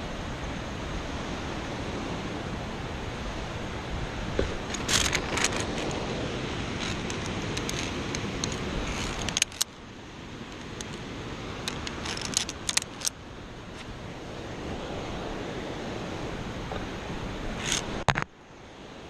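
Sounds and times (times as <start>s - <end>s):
wind noise on microphone: 0.0s - 9.7s, 10.6s - 19.0s
carabiners clinking on steel cable: 4.7s - 6.0s, 6.8s - 9.7s, 11.6s - 13.2s, 17.6s - 18.2s.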